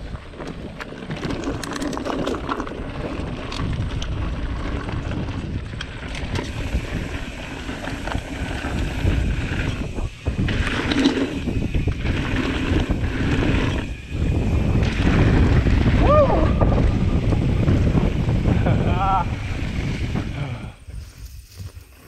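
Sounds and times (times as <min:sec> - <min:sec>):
tyres rolling over gravel: 0:00.0 - 0:16.1
bike clicks and rattles: 0:00.0 - 0:22.0
wind buffeting microphone: 0:00.0 - 0:22.0.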